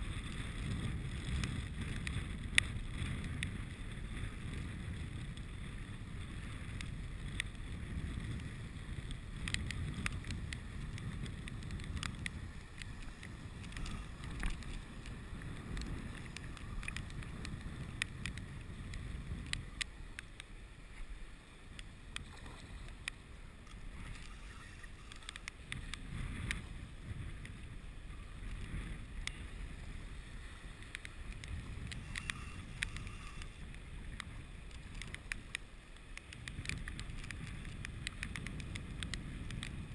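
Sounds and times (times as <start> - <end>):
wind buffeting microphone: 0.0 - 39.9
sharp clicks and ticks: 6.7 - 20.5, 21.7 - 26.7, 30.7 - 39.9.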